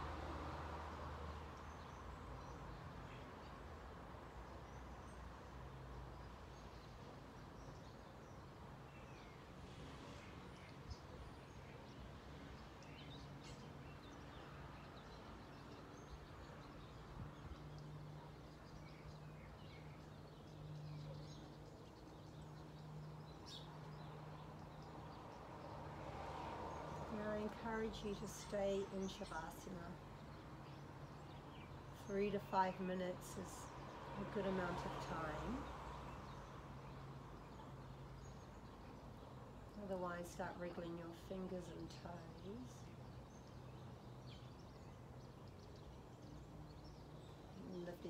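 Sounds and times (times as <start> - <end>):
low steady background hum: 26.9 - 48.0.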